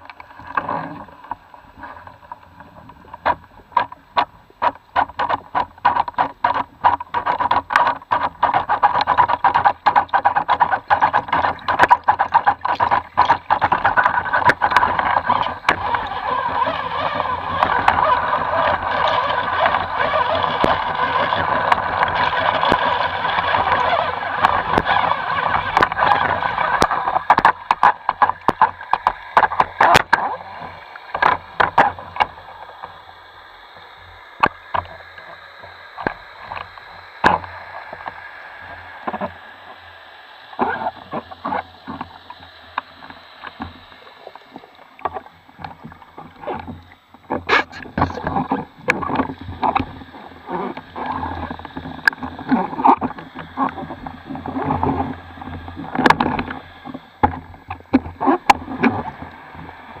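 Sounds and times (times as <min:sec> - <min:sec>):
muffled underwater water movement: 0:00.0 - 1:00.0
sharp knocks and clicks: 0:02.8 - 0:15.8, 0:25.6 - 0:30.2, 0:31.1 - 0:32.3.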